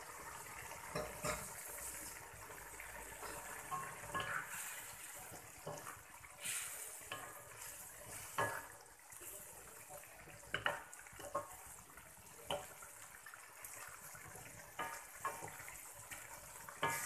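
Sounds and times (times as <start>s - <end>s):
leaves bubbling and sizzling in wok: 0.0s - 17.0s
wooden spatula scraping a pan: 3.2s - 12.8s, 13.9s - 17.0s.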